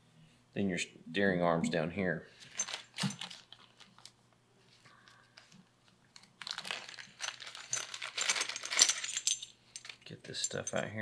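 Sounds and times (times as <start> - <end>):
plastic bag crinkling: 2.5 - 4.1, 6.2 - 10.0.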